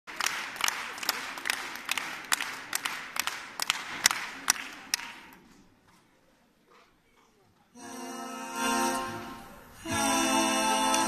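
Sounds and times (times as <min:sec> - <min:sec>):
audience clapping in rhythm: 0:00.0 - 0:05.4, 0:09.9 - 0:11.0
crowd noise: 0:00.1 - 0:11.0.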